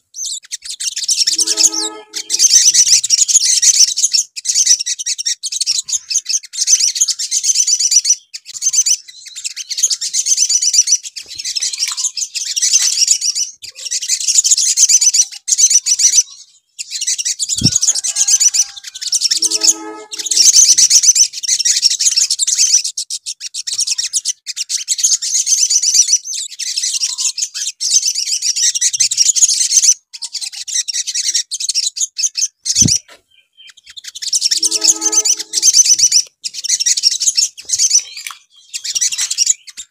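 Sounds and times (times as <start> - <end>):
birds singing high-pitched trills: 0.2 - 29.7, 30.4 - 39.9.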